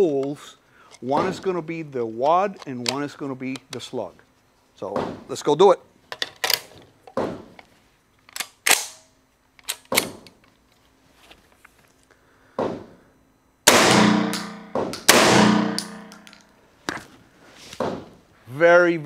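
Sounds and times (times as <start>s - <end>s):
shotgun firing indoors: 13.6s - 16.4s.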